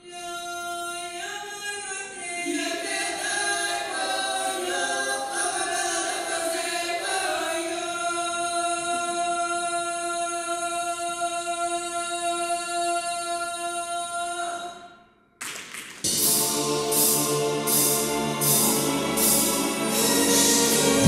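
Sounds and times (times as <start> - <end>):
group singing in harmony: 2.1 - 9.6, 16.1 - 21.0.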